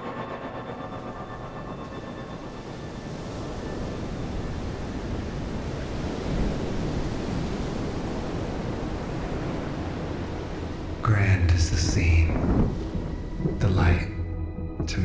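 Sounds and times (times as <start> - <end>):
low rumbling noise: 8.5 - 15.0.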